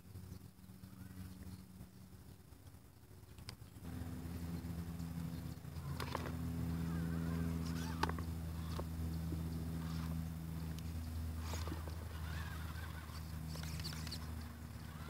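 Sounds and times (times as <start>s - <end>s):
rc car motor whining: 3.8s - 15.0s.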